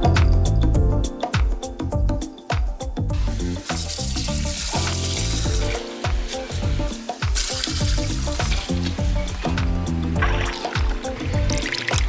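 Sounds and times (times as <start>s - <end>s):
background music with beat: 0.0s - 12.0s
water pouring from bucket: 3.1s - 9.6s, 10.2s - 12.0s.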